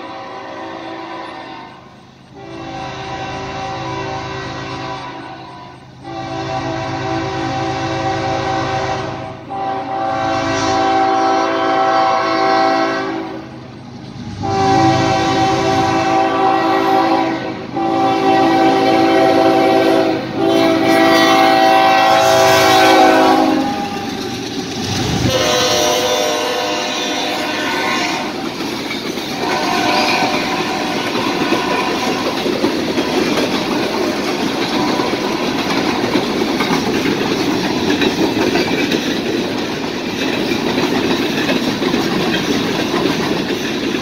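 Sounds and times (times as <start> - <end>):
locomotive air horn blasts: 0.0 - 13.5, 14.4 - 24.1, 25.2 - 28.4, 29.3 - 32.4, 34.6 - 35.5
train engine and wheels rumbling: 0.0 - 44.0.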